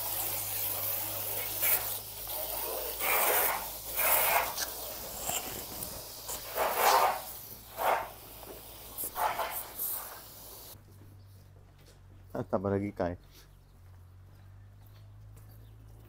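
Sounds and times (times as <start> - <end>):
garden hose spraying water: 0.0 - 10.8.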